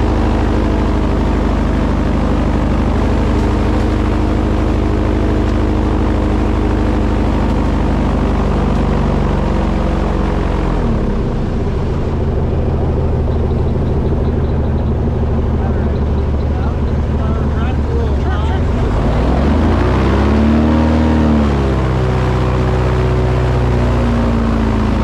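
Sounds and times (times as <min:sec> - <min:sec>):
boat engine running: 0:00.0 - 0:25.0.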